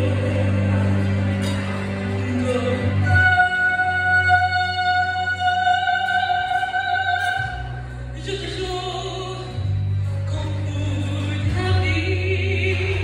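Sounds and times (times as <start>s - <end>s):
woman singing operatically: 2.2s - 9.7s, 10.3s - 13.0s.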